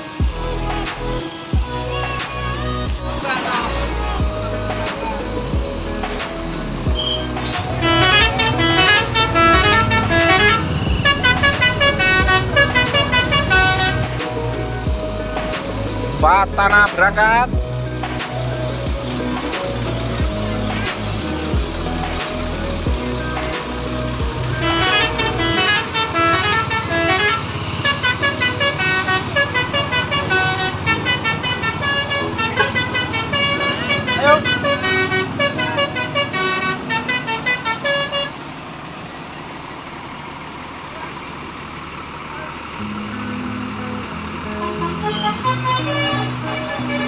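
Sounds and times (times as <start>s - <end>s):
low engine rumble: 0.0s - 47.0s
multi-tone bus horn tune: 6.9s - 15.4s, 22.8s - 38.4s, 42.6s - 47.0s.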